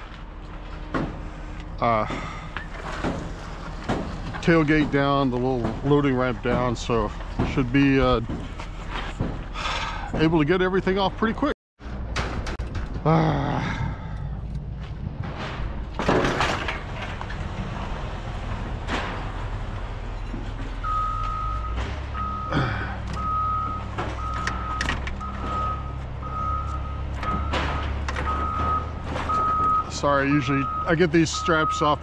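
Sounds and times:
reversing alarm beeping: 20.8s - 32.0s.

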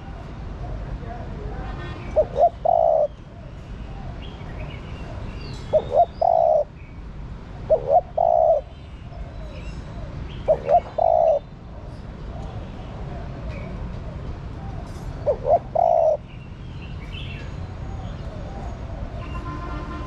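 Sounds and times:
dove cooing: 2.2s - 3.2s, 5.1s - 6.7s, 7.6s - 11.8s, 14.6s - 16.2s.

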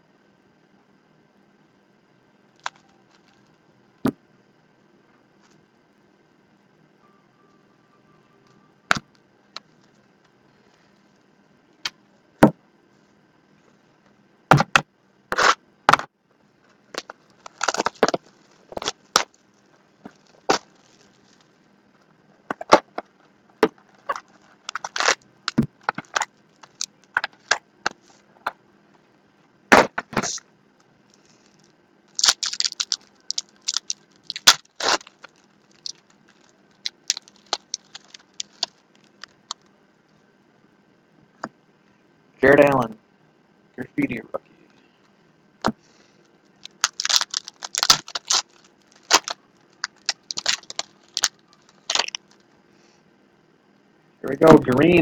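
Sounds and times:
wrappers crinkling: 16.6s - 28.2s, 30.1s - 30.4s, 31.1s - 39.6s, 46.6s - 52.4s
cards snapping and clicking: 49.1s - 51.3s.

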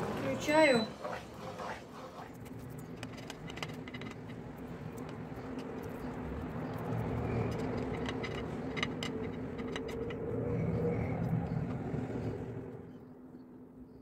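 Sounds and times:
plastic spatula scraping a plate: 0.9s - 4.4s.

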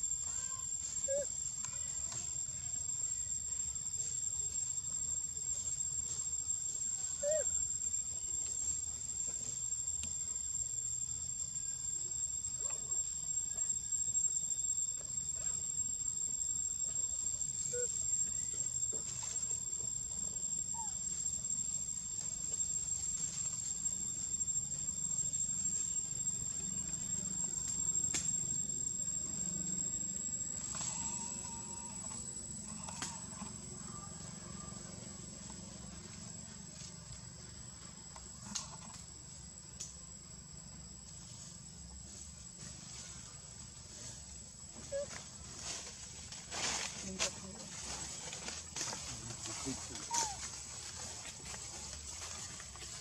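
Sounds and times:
high-pitched insect buzz: 0.0s - 36.9s.

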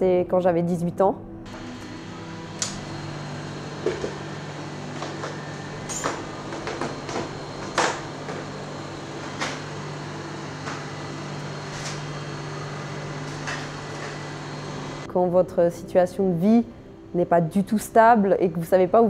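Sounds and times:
kitchen equipment humming: 1.5s - 15.1s.

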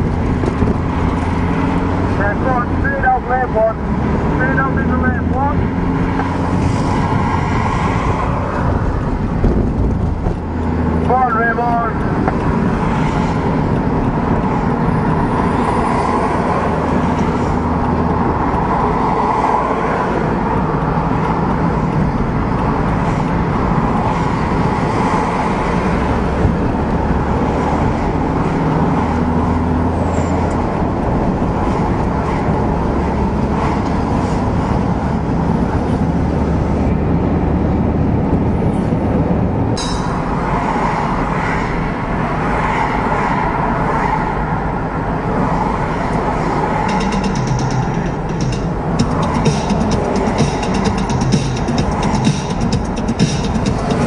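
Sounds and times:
passing lorries and cars: 0.0s - 54.0s
tyre noise on road: 0.0s - 54.0s
vehicle engine hum: 0.0s - 54.0s.

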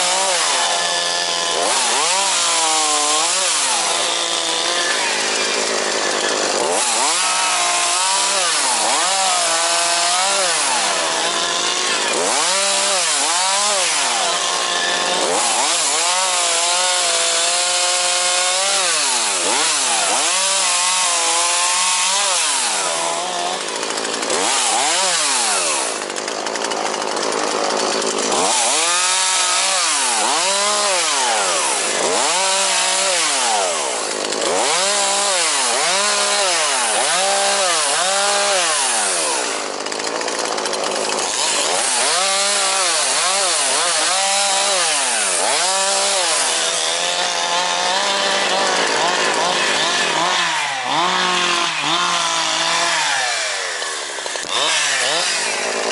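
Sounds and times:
chainsaw revving: 0.0s - 55.9s.

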